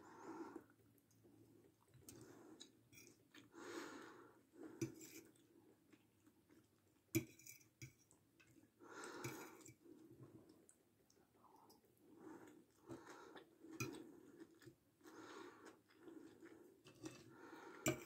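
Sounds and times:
chewing: 12.4 - 18.0
heavy breathing: 17.3 - 18.0.

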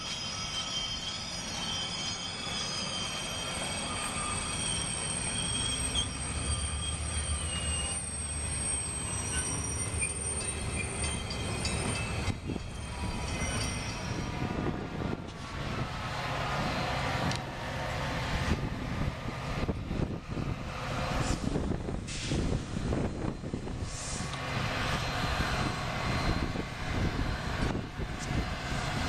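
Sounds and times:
train wheels squealing: 0.0 - 18.6, 20.4 - 29.0
wheels rumbling on rail: 0.0 - 29.0.

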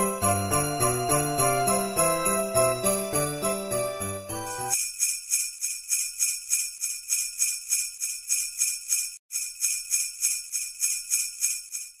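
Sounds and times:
jingle bells shaken rhythmically: 0.0 - 9.0.

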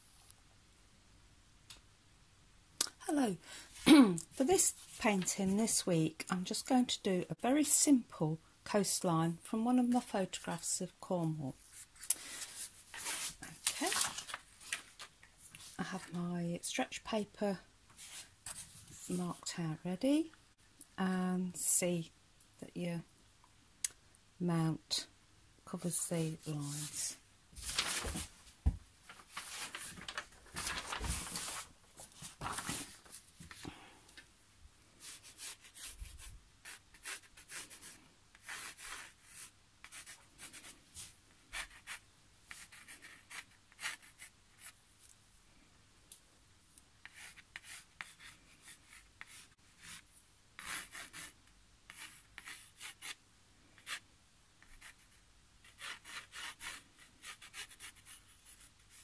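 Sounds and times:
pencil scratching on paper: 35.0 - 40.7, 41.5 - 44.8, 47.0 - 50.0, 50.6 - 53.2, 54.6 - 59.0.

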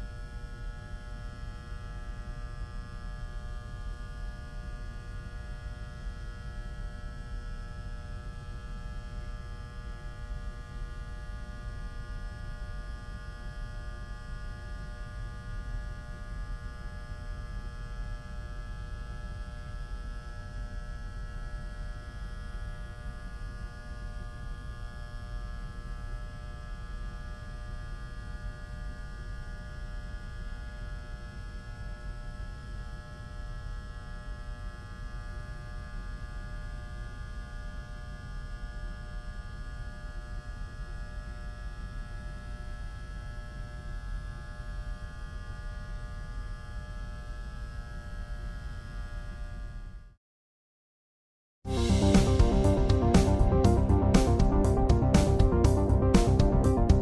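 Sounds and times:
low rumble: 51.7 - 57.0.

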